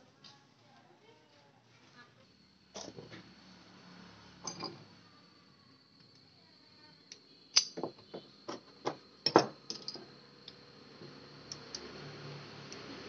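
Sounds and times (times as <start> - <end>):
small metal clicks and taps: 7.1 - 7.9.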